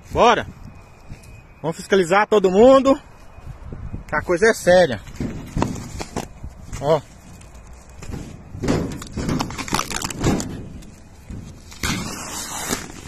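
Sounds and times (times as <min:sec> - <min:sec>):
plastic sheeting ripping: 0:09.2 - 0:10.5, 0:11.6 - 0:13.0.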